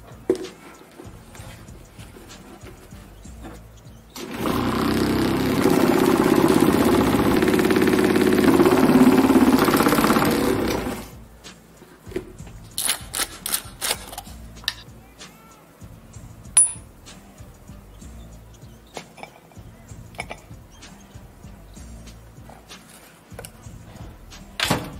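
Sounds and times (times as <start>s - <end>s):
vibrating motor buzzing: 4.2s - 11.2s
sharp high glass clink: 16.6s - 16.9s.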